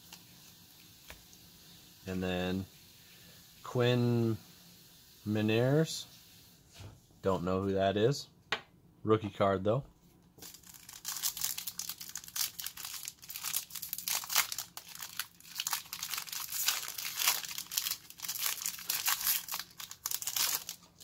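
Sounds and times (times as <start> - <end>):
foil wrapper crinkling and tearing: 10.4 - 21.0.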